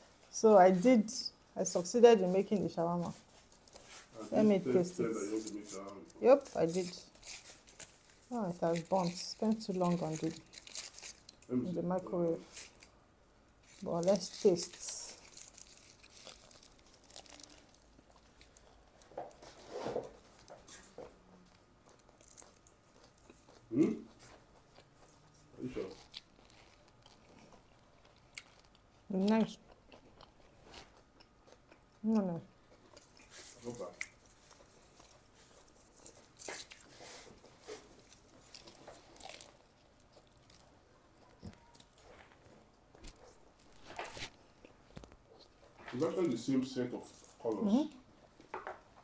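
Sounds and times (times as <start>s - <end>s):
paper wrappers rustling: 2.3s - 13.0s, 13.6s - 21.1s, 41.6s - 47.8s
foil crinkling: 2.4s - 11.5s, 13.6s - 21.0s
chewing: 12.4s - 19.6s, 20.2s - 46.0s.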